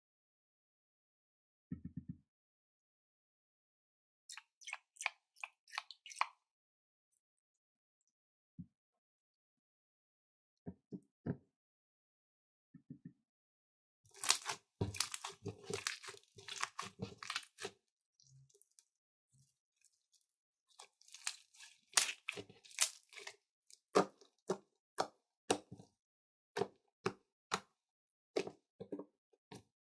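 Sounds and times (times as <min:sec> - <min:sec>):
slime squelching: 0:04.3 - 0:06.3, 0:14.1 - 0:24.6
slime popping: 0:14.2 - 0:17.7.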